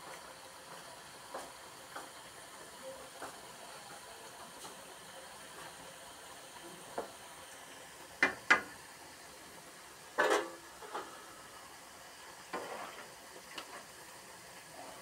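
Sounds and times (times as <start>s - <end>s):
fries sizzling in hot oil: 0.0s - 15.0s
metal spatula scraping pan: 12.6s - 13.0s.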